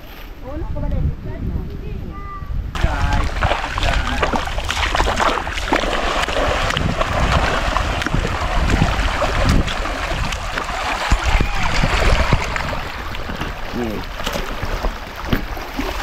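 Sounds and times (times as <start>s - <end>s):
wind rumble on microphone: 0.0s - 16.0s
muddy water splashing: 2.8s - 16.0s.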